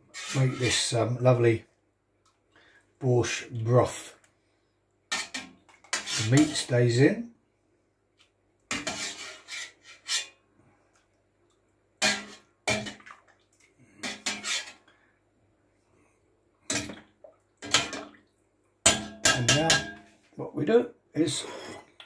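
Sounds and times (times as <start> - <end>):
utensil clattering in a steel pot: 12.0 - 13.1.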